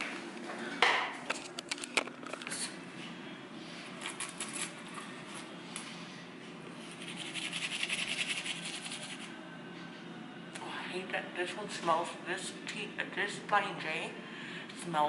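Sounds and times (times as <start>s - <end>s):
toothbrush scrubbing teeth: 6.9s - 9.3s.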